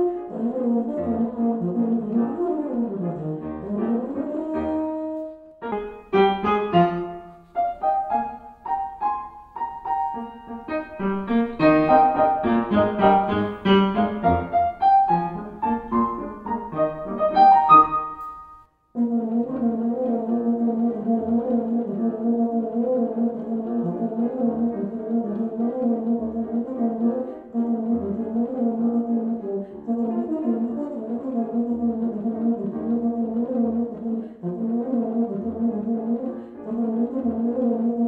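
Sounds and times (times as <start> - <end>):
piano playing quick runs: 0.0 - 22.6.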